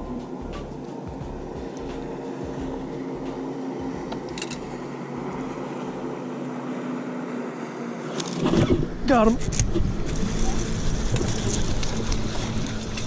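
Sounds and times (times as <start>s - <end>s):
boat motor humming: 0.0s - 13.0s
wind rumbling on microphone: 8.4s - 13.0s.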